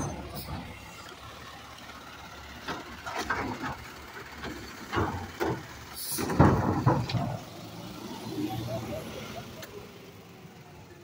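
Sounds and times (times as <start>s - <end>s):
diesel engine idling: 0.0s - 11.0s
trash cart knocks and clatters: 2.6s - 3.8s, 4.4s - 7.4s
cart bang: 5.0s - 7.4s.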